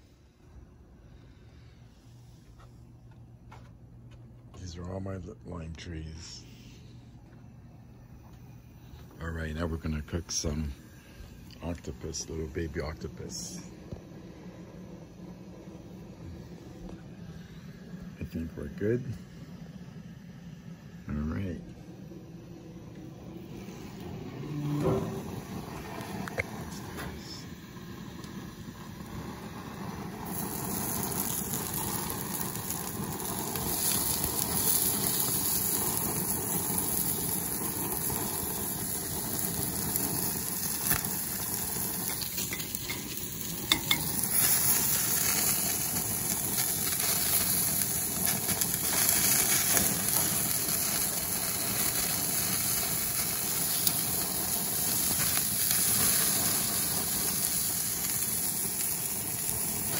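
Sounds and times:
octopus sizzling on a grill: 23.7s - 59.9s.

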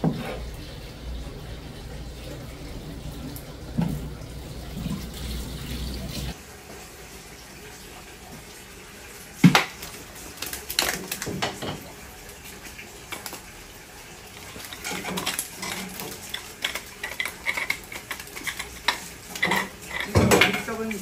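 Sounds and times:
fish smacking the floor: 9.4s - 11.4s
fish scaler scraping: 14.4s - 20.7s.

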